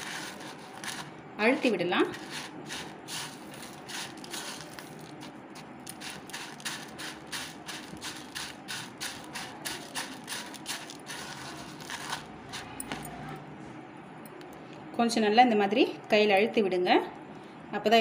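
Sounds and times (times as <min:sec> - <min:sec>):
dry noodles crunching and rustling: 0:00.0 - 0:13.0.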